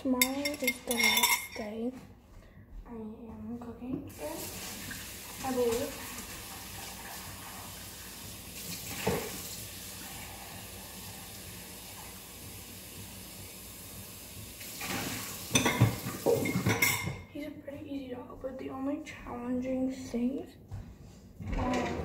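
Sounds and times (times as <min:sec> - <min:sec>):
faucet running into sink: 0:04.1 - 0:17.2.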